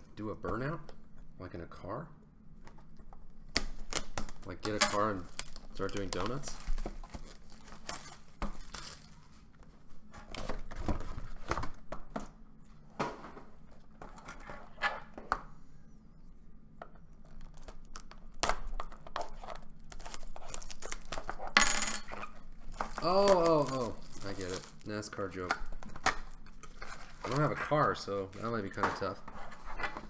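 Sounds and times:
plastic wrap crinkling and tearing: 5.1s - 9.4s, 17.2s - 21.4s, 22.6s - 28.8s.

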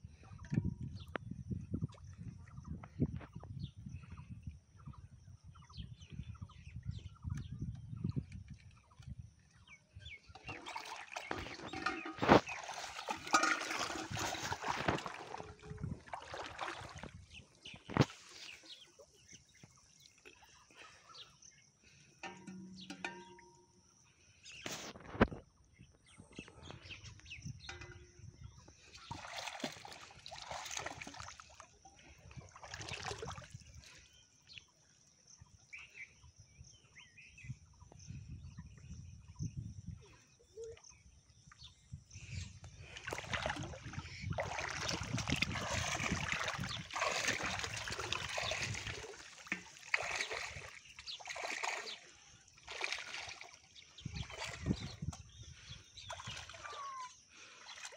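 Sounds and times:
water splashing from wading: 10.3s - 20.7s, 28.9s - 34.0s, 42.8s - 55.0s, 56.0s - 57.9s.

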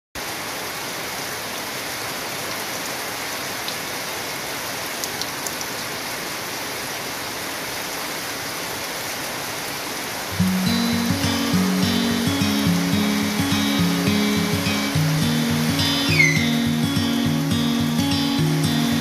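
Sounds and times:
rain falling on grass and leaves: 0.2s - 19.0s
sharp raindrop ticks: 5.0s - 5.9s.

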